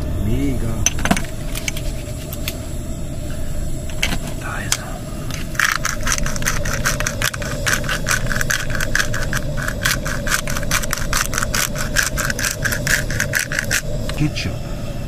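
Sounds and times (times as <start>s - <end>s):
gas stove burner hissing: 0.0s - 15.0s
pepper mill grinding: 5.3s - 14.2s.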